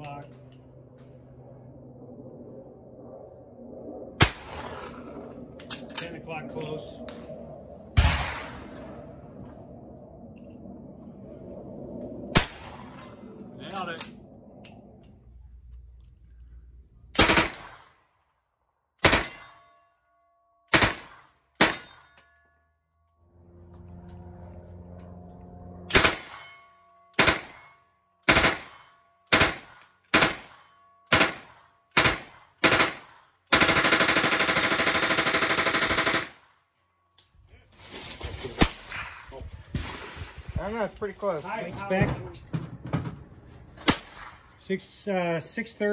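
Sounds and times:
automatic gunfire burst: 0:32.0 - 0:36.3.

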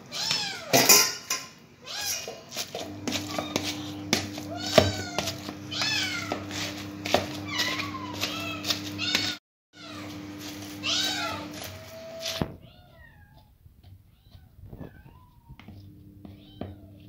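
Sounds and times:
cat meowing: 0:00.0 - 0:00.9, 0:01.8 - 0:02.4, 0:03.2 - 0:06.5, 0:07.4 - 0:10.1, 0:10.8 - 0:15.7, 0:16.3 - 0:17.0.

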